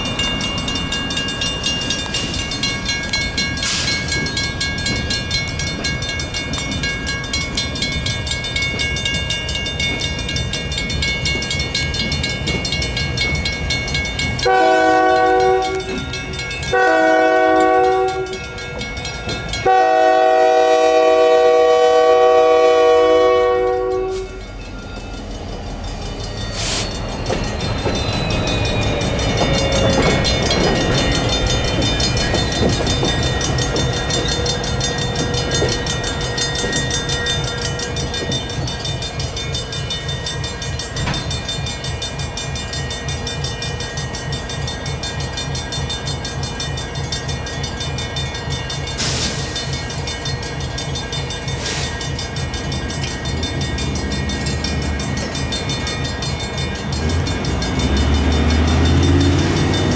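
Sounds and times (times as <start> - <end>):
railroad crossing bell ringing: 0.0 - 59.9
train rumble: 0.0 - 59.9
locomotive horn blasts: 14.4 - 16.1, 16.7 - 18.5, 19.6 - 24.5.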